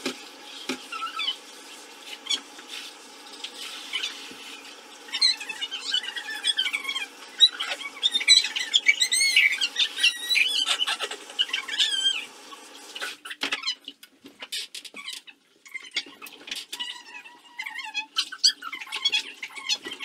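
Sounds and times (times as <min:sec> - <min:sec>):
high-pitched squeaks and warbling: 0:05.1 - 0:12.3.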